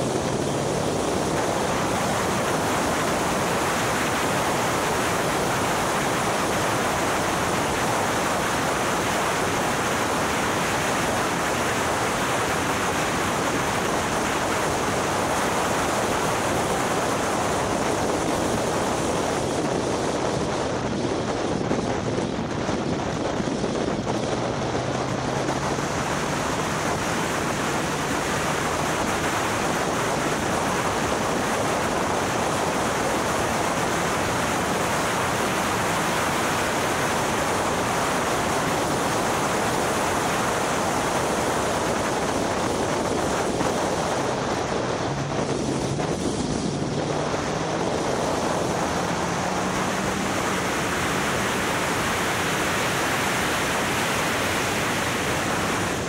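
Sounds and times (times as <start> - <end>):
wind rush over microphone: 0.0 - 56.0.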